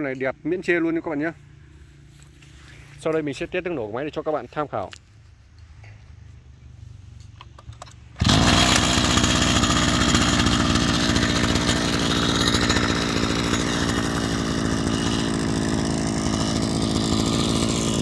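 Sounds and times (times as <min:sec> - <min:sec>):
brush cutter engine running: 0:08.2 - 0:18.0.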